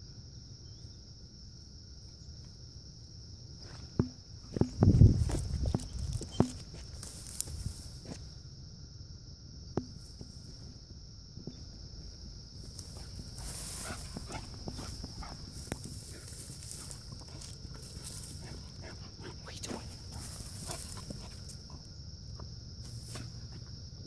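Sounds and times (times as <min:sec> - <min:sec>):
high-pitched insect drone: 0:00.0 - 0:24.0
footsteps: 0:03.6 - 0:08.3, 0:11.5 - 0:21.8.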